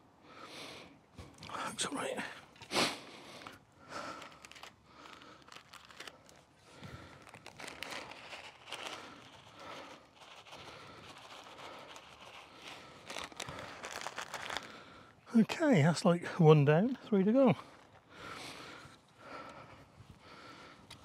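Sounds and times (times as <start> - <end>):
soil rustling and crunching: 3.3 - 18.8.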